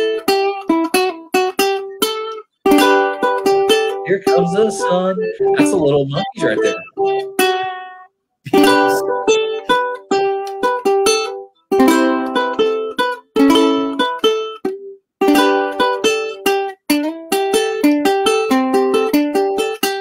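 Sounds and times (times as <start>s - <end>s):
ukulele picking and strumming: 0.0s - 20.0s.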